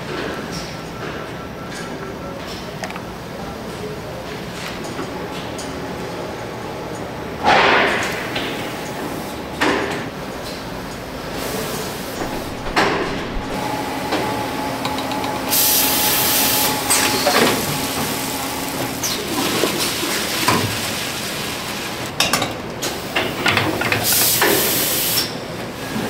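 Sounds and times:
machinery humming: 0.0s - 26.0s
hiss: 15.5s - 22.0s, 23.0s - 25.3s.

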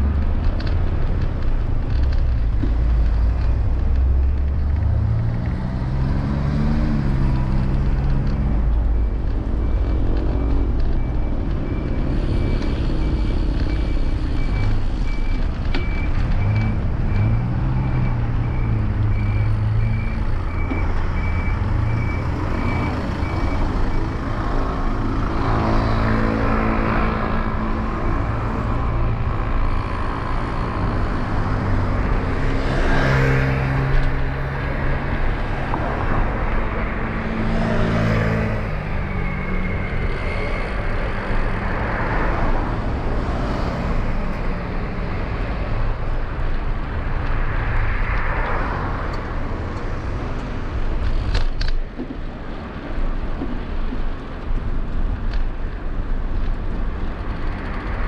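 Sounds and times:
low traffic rumble: 0.0s - 58.0s
vehicles passing: 0.0s - 58.0s
reversing beeper: 7.8s - 30.3s.

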